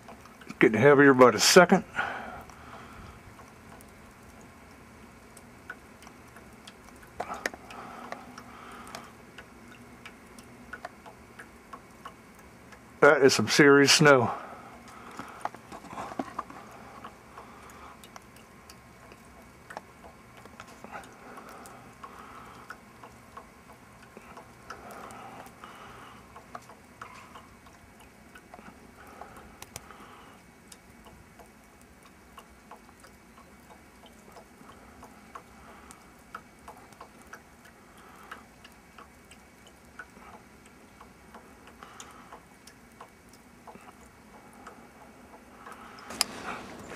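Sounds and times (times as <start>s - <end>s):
snow pattering: 46.1s - 46.9s.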